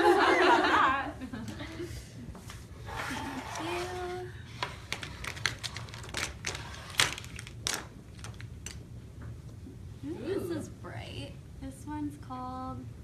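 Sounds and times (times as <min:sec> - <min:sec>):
paper bag crinkling: 0:04.9 - 0:08.8.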